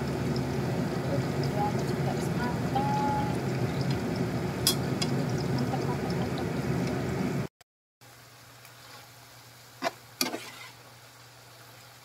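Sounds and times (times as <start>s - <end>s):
faint steady hum: 0.0s - 10.2s
hot oil sizzling: 0.0s - 12.0s.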